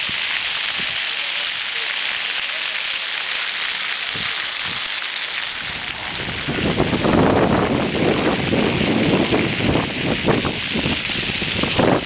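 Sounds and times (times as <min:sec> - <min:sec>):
fountain water splashing: 0:00.0 - 0:12.0
wind buffeting microphone: 0:04.1 - 0:04.9, 0:05.6 - 0:12.0.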